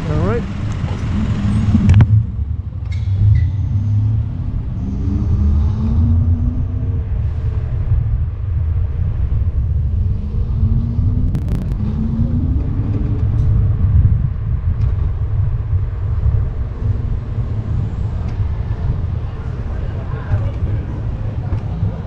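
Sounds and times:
wind and road rumble: 0.0 - 22.0
short rising whine: 9.6 - 14.2.

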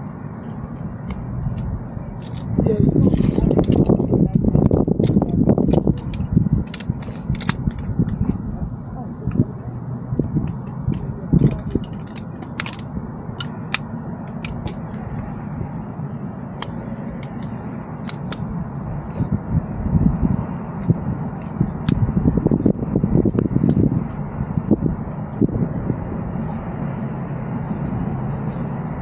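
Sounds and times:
wind on microphone: 0.0 - 29.0
chair poles clicking: 0.4 - 8.6, 10.1 - 15.3, 16.5 - 19.4, 20.7 - 25.5.

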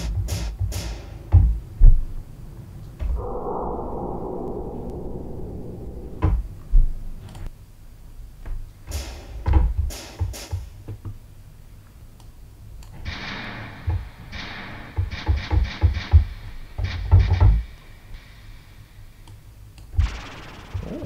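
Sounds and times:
dull filtered scraping: 3.0 - 7.3.

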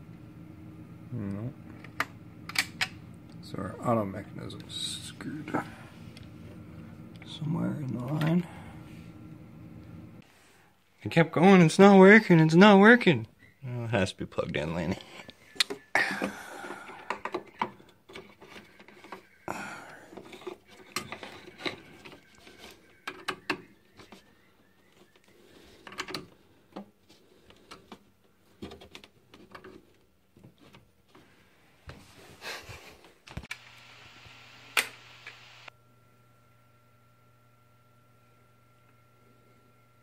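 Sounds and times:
steady low hum: 0.0 - 10.3
clicks and rubbing of wiring: 25.0 - 31.2.

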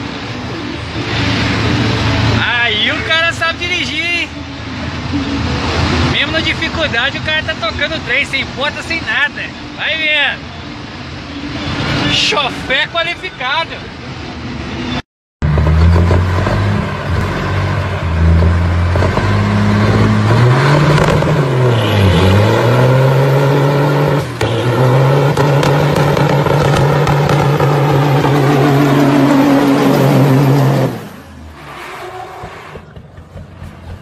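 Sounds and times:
truck diesel engine revving: 15.4 - 34.0.

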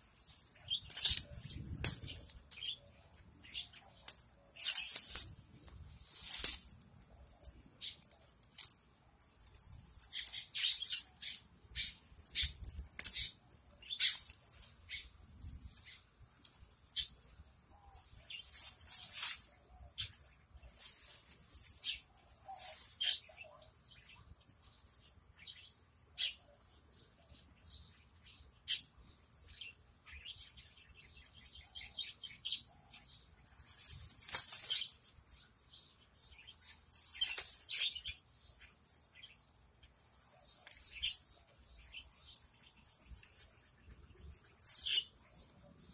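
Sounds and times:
leaves rustling as weeds pulled: 0.0 - 17.1, 18.0 - 23.7, 33.5 - 35.4, 36.5 - 38.2, 40.1 - 45.9.

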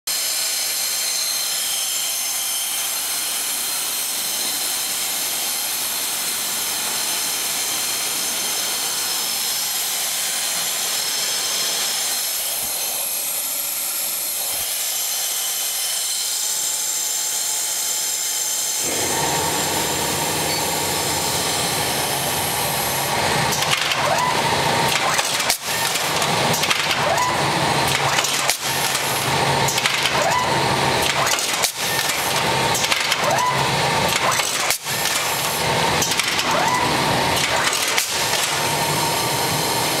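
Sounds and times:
machine hiss with whining tones: 18.6 - 23.6
low machine hum: 18.8 - 23.5.

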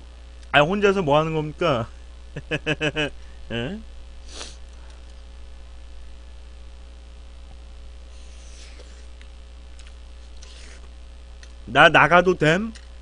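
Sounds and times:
low mains hum: 0.0 - 13.0
soft eating noises: 7.4 - 11.7.

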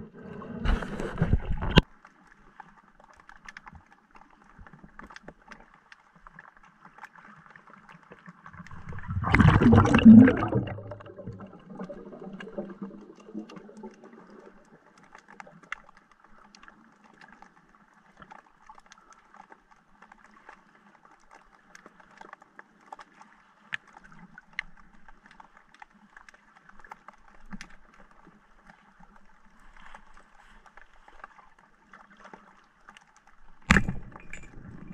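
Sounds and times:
faint underwater crackling: 0.0 - 34.9
loud gurgle of bubbles: 8.7 - 14.4.

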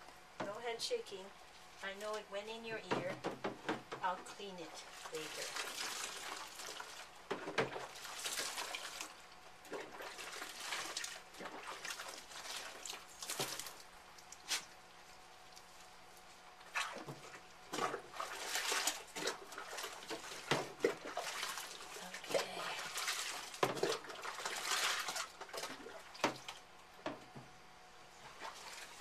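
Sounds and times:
water splashing in a sink: 4.8 - 13.9, 16.6 - 26.7, 28.2 - 29.0.

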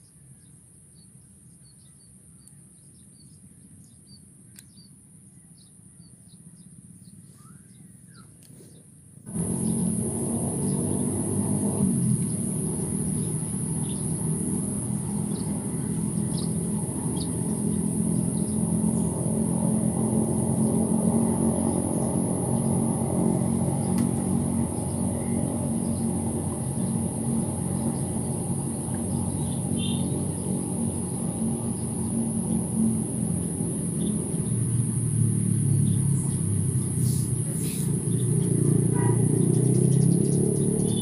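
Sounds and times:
bird chirps: 0.0 - 8.9, 12.1 - 19.6, 21.6 - 32.7, 35.7 - 41.0
distant motor hum: 5.6 - 41.0
high-pitched whine: 9.2 - 38.8.

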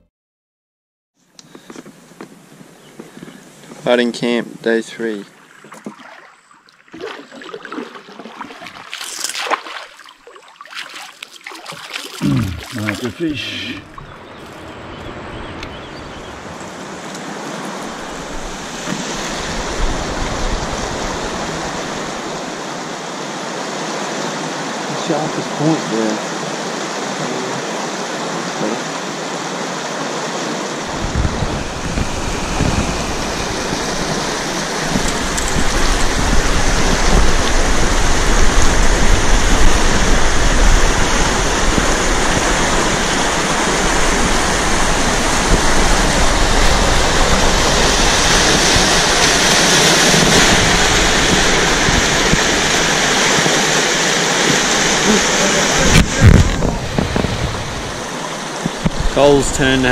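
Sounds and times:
water rushing over rocks: 5.1 - 59.9.

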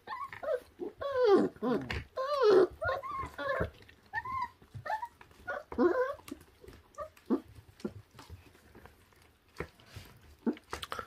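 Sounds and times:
puppies whimpering and whining: 0.0 - 8.6.

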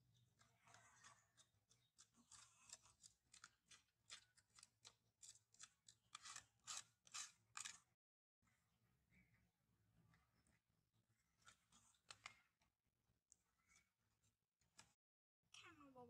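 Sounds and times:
crinkly material snipping and crackling: 0.4 - 7.9.

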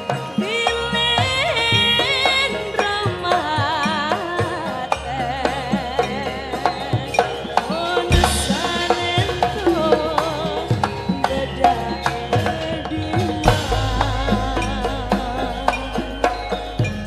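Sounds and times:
gamelan music: 0.0 - 17.0
woman singing with vibrato: 0.0 - 17.0
sharp hand drum strokes: 8.1 - 17.0.

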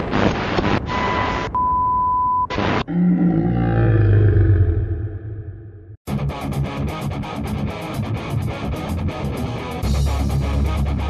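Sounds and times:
strummed electric guitar: 6.1 - 11.0.

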